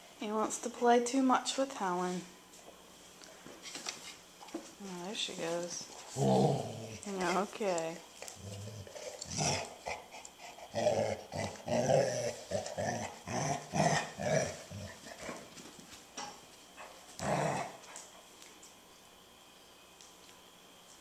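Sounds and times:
puppies play-growling: 0:05.9 - 0:16.0, 0:16.8 - 0:18.4.

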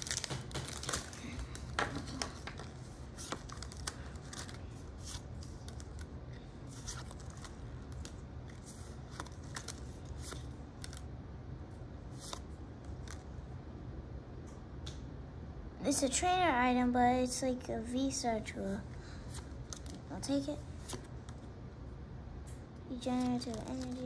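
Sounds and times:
cards flicking and tapping: 0:00.0 - 0:06.1
steady low hum: 0:00.0 - 0:24.0.

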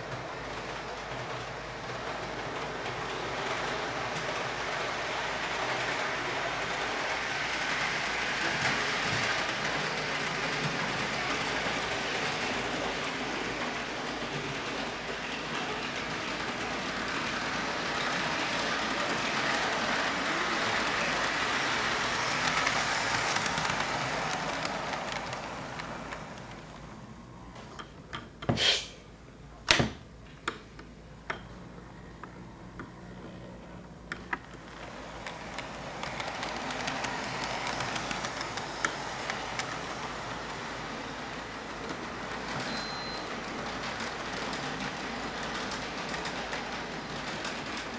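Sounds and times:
model train running on track: 0:00.0 - 0:27.3, 0:33.7 - 0:47.9
wheels clicking on rails: 0:00.0 - 0:28.5, 0:32.2 - 0:47.9
electronic tone: 0:42.7 - 0:43.3.

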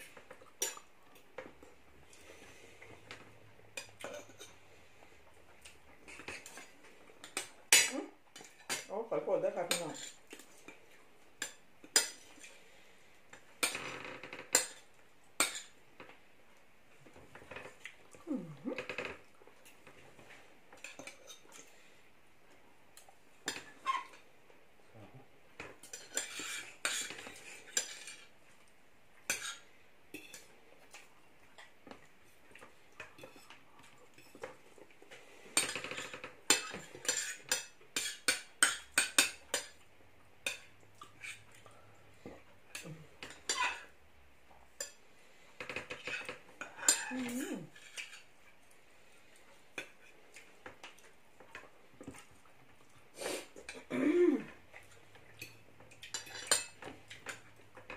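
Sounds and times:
cutlery clinking on plates: 0:03.1 - 0:04.6, 0:25.6 - 0:28.3, 0:35.6 - 0:39.8, 0:42.7 - 0:44.0, 0:45.6 - 0:47.1, 0:55.3 - 0:57.9.

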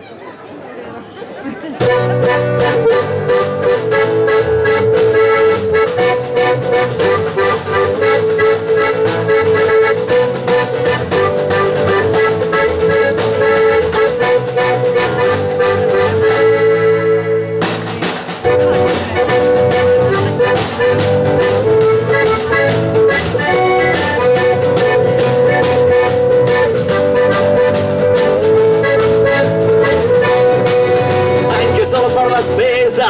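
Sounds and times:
acoustic band playing: 0:01.6 - 0:33.0
accordion chords: 0:01.8 - 0:33.0
strummed guitars: 0:01.8 - 0:33.0.

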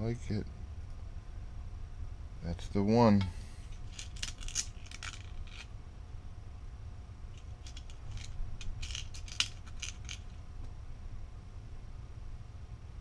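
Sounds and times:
small metal screws clicking: 0:03.8 - 0:05.7, 0:07.4 - 0:10.4.

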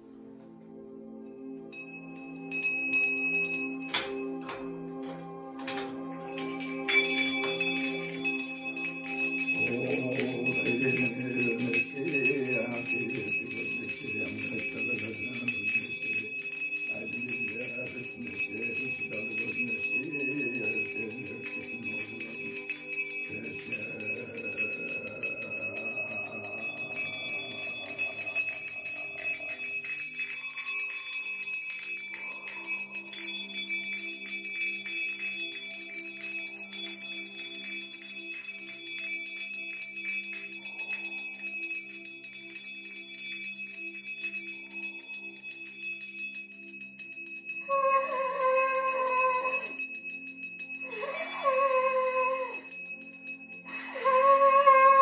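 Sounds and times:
hand bells jingling: 0:01.7 - 0:04.7, 0:05.7 - 0:55.0
low steady drone: 0:08.2 - 0:35.0.

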